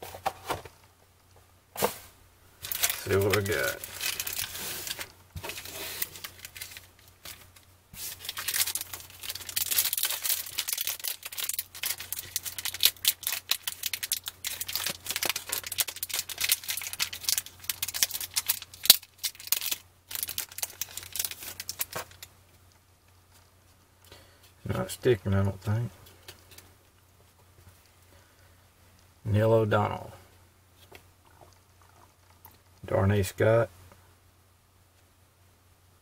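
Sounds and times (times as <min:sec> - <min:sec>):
foil wrapper crinkling and tearing: 0:02.6 - 0:22.3.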